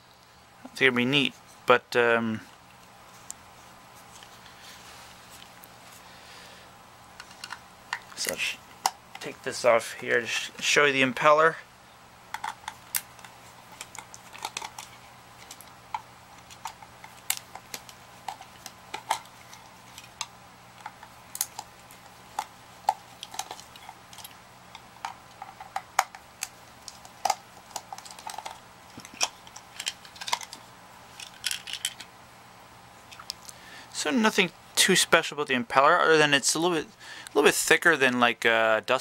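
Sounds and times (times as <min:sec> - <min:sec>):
faint steady hum: 0:00.0 - 0:39.0
screws and parts handled: 0:12.4 - 0:32.1.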